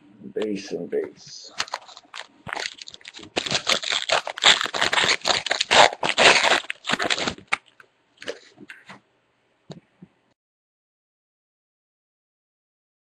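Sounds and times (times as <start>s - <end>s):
foil wrapper crackling: 1.5s - 7.8s.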